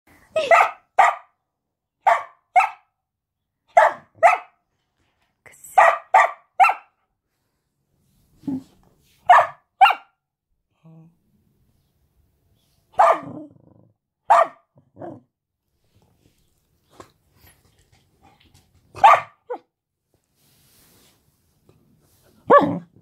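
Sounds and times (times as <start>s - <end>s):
dog barking: 0.4s - 1.4s, 2.0s - 3.0s, 3.7s - 4.6s, 5.8s - 7.0s, 9.2s - 10.2s, 13.0s - 13.6s, 14.2s - 15.2s, 19.0s - 19.7s, 22.4s - 22.9s.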